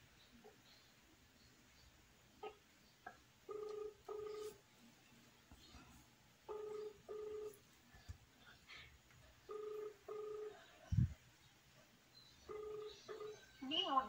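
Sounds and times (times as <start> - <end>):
telephone ringback tone: 3.5 - 4.6, 6.5 - 7.6, 9.5 - 10.7, 12.5 - 13.6.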